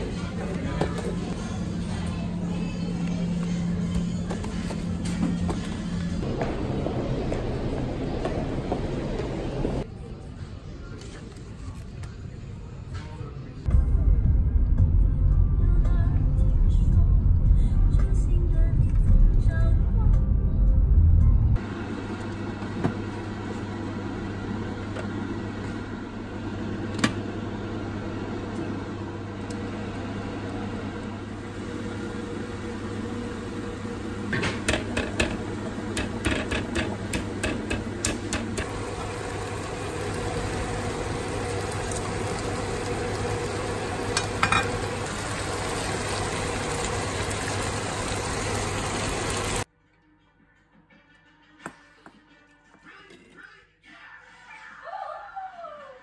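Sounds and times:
low hum: 13.6 - 22.4
water boiling hiss: 38.5 - 49.7.

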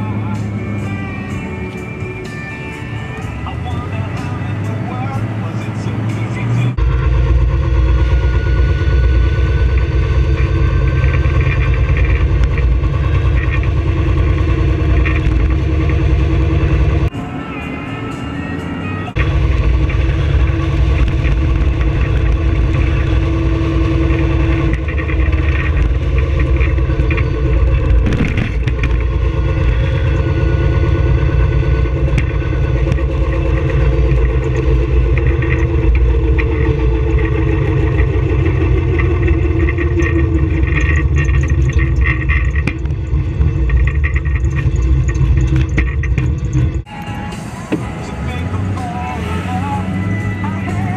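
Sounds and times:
road rumble: 0.0 - 50.9
electric motor hum: 6.8 - 17.1, 19.2 - 46.9
wind buffeting: 19.2 - 46.9.

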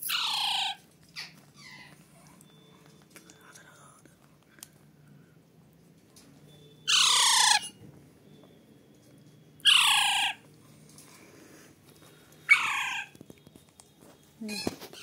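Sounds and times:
parakeet chick harsh calls: 0.0 - 0.8, 6.9 - 7.8, 9.6 - 10.4, 12.5 - 13.1.

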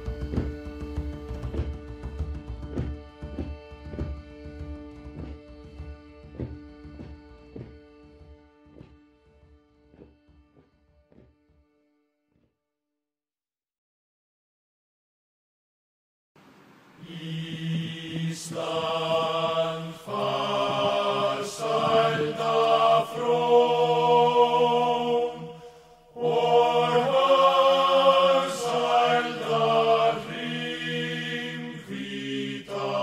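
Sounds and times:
slow chant-like singing: 17.0 - 33.0.

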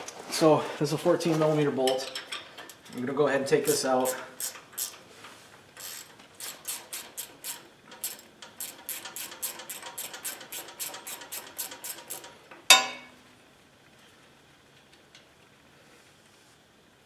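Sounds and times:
ratchet wrench clicking: 3.7 - 5.0, 5.8 - 12.3
sharp metallic clank: 12.7 - 13.2.

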